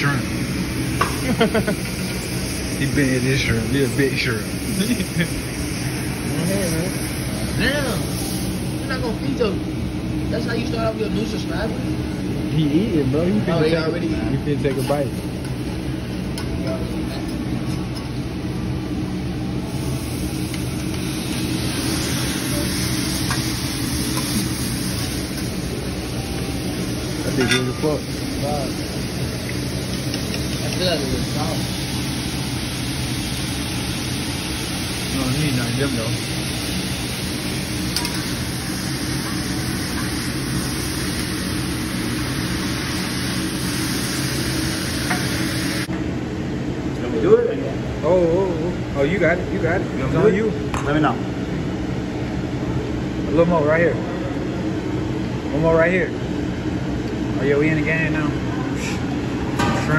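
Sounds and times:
food sizzling on a griddle: 0.0s - 9.6s, 19.7s - 45.9s
steady low hum: 0.0s - 59.9s.

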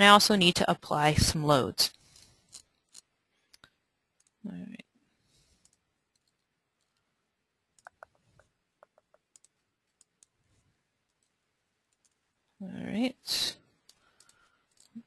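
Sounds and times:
computer mouse clicks: 7.8s - 10.3s.

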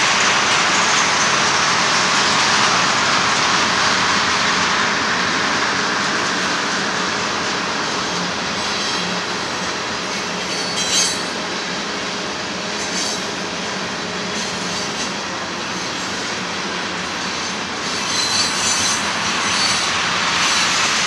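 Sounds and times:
train wheels rumbling on rail: 0.0s - 21.0s
high-pitched wheel squeal: 10.1s - 11.4s, 12.8s - 13.3s, 17.4s - 20.9s.

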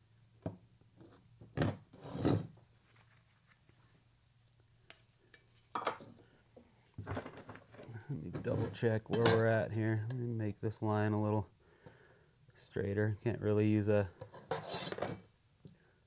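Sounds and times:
metal scraping rubs: 1.9s - 3.3s, 14.3s - 15.2s.

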